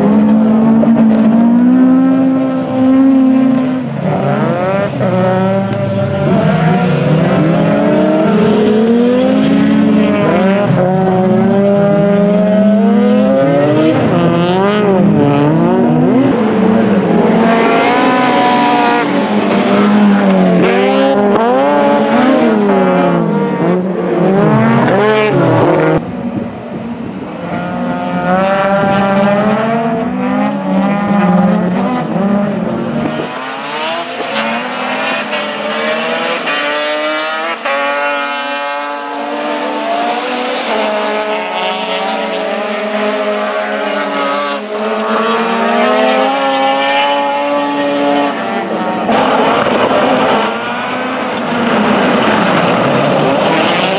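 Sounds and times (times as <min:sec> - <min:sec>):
race car engines revving: 0:00.0 - 0:53.9.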